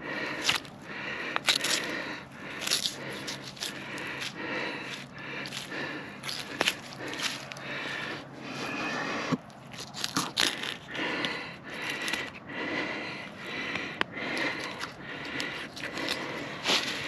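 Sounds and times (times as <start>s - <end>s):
close breathing and sniffing: 0.0s - 17.0s
blade scrapes and crackles: 0.3s - 12.4s, 14.4s - 17.0s
knife cutting through joint: 1.4s - 12.3s, 14.4s - 17.0s.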